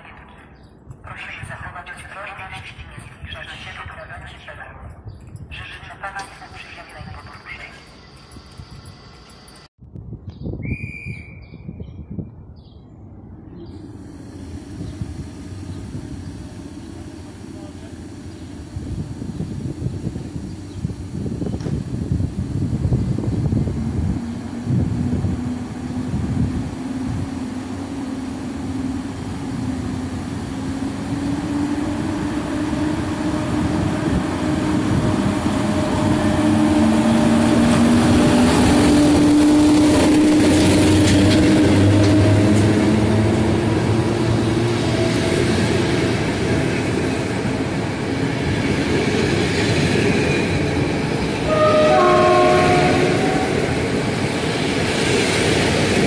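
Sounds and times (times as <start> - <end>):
electric locomotive hum: 0.0 - 9.7, 12.4 - 56.0
train wheels rumbling on rails: 2.8 - 9.7, 13.6 - 56.0
loud pitched tone: 51.5 - 53.9.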